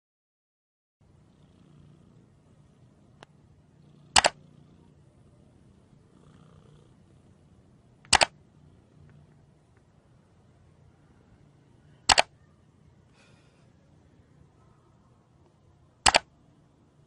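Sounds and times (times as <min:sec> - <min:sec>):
faint low hum: 0:01.0 - 0:17.0
sharp double clicks: 0:04.1 - 0:04.4, 0:08.0 - 0:08.4, 0:12.1 - 0:12.3, 0:16.0 - 0:16.3.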